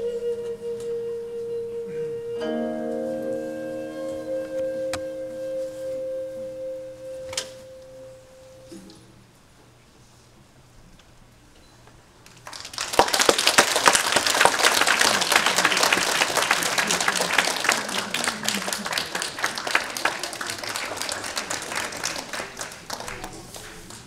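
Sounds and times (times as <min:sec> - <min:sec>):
audience applause: 0:12.3 - 0:24.0.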